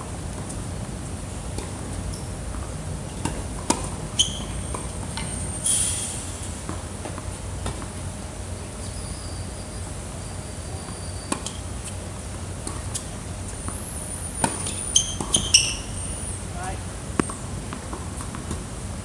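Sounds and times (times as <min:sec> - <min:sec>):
tennis racket hitting ball: 0:14.4 - 0:15.8.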